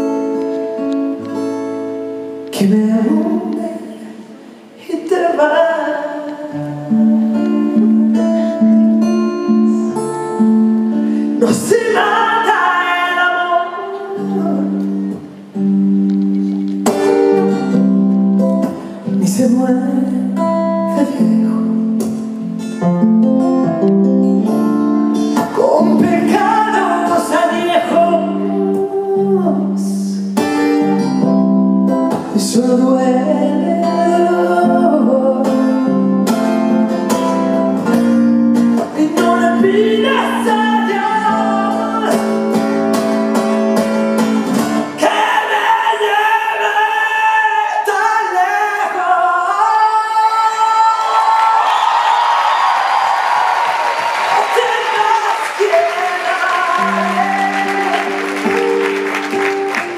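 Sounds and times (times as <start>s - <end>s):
acoustic guitar: 0.0s - 59.9s
woman singing: 2.5s - 4.2s, 4.8s - 8.8s, 11.4s - 14.9s, 19.2s - 21.9s, 25.5s - 30.2s, 32.3s - 35.9s, 39.0s - 42.3s.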